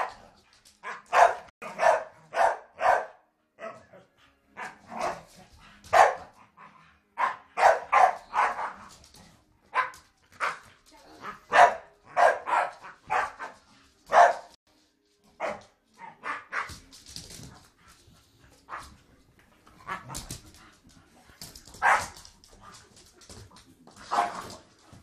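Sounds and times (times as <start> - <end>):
dogs barking while play-fighting: 0.0 - 9.1, 9.7 - 14.6, 15.4 - 16.8, 21.7 - 22.3, 24.0 - 24.6.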